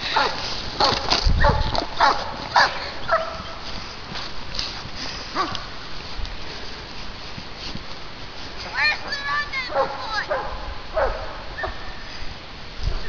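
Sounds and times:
dog barking: 0.2s - 3.5s, 5.4s - 5.6s, 9.7s - 11.8s.

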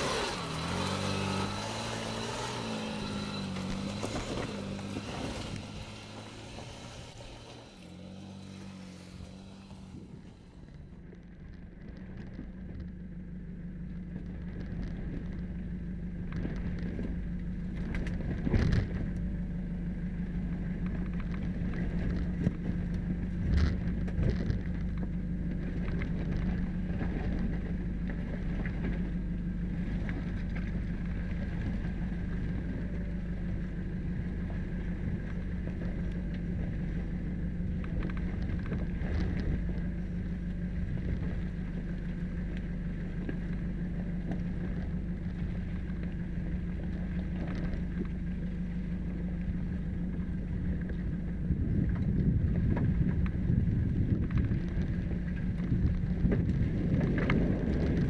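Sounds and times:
tyres crunching on stones: 0.0s - 9.9s
vehicle engine running: 0.0s - 58.0s.

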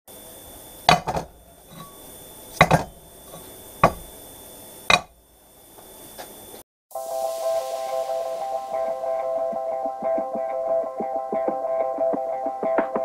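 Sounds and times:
steel bearings clunking on metal: 0.9s - 4.1s, 4.9s - 5.2s.

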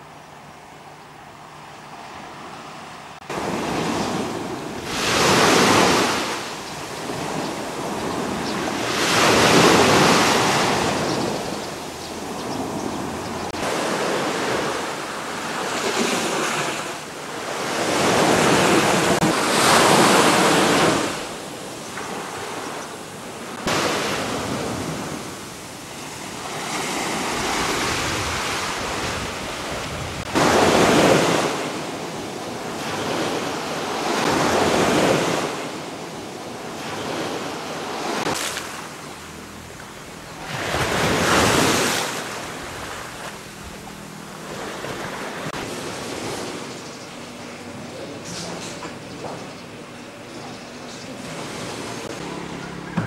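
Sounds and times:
waves washing onto beach: 3.2s - 46.8s
wind on microphone: 26.9s - 35.6s.

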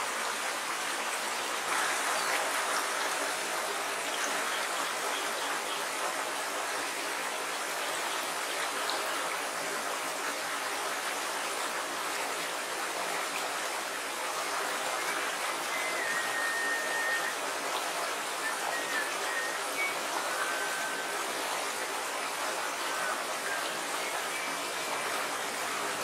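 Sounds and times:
river flowing over stones: 0.0s - 26.0s
thin high whistle: 15.7s - 17.4s, 18.4s - 21.3s.

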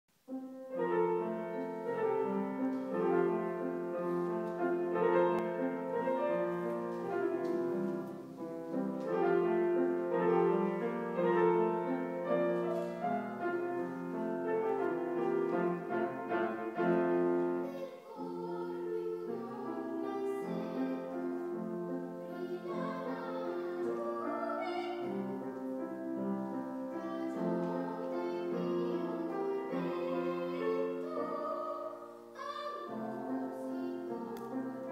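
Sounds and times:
grand piano accompaniment: 0.1s - 34.9s
woman singing opera: 22.3s - 25.2s, 27.0s - 34.9s.

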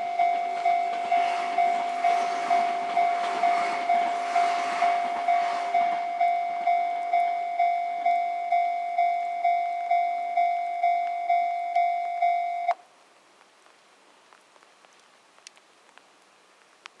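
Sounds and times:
level crossing bell ringing: 0.0s - 12.7s
train running past: 0.0s - 12.7s.

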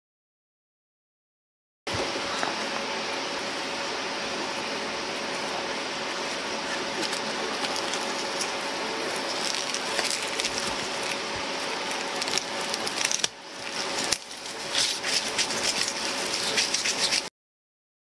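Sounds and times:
rustling and crinkling: 1.9s - 17.3s.

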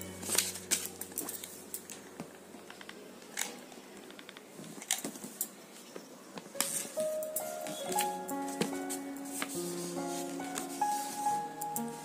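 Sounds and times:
low steady hum: 0.0s - 3.9s
hands handling paper: 6.6s - 11.3s.

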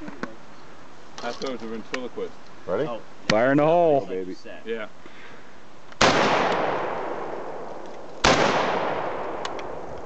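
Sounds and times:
rifle shots with echo: 6.0s - 10.0s.

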